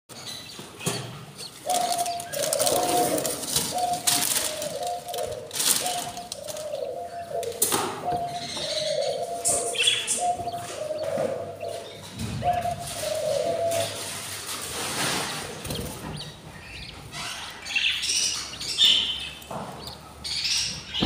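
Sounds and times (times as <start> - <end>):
birds chirping: 0.1 - 21.0
wings fluttering: 1.5 - 11.8, 12.4 - 16.9.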